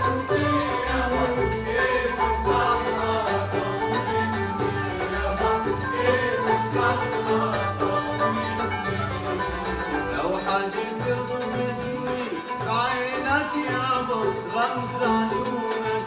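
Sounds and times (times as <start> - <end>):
person singing: 0.0 - 4.3, 5.0 - 8.6
bowed violins and cello: 0.0 - 16.0
plucked zither and lute: 0.0 - 16.0.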